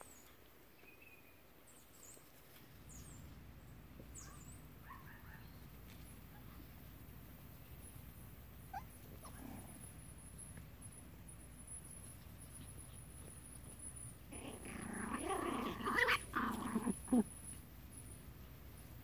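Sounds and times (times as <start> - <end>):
high-pitched puppy growls: 8.7 - 10.0, 14.2 - 17.5.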